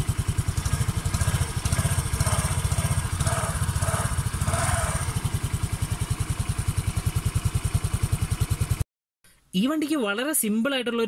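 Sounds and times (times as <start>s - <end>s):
scooter engine idling: 0.0s - 8.8s.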